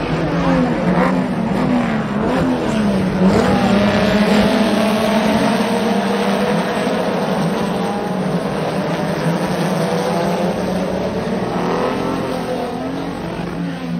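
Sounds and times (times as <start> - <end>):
race car engines passing at speed: 0.0 - 13.9.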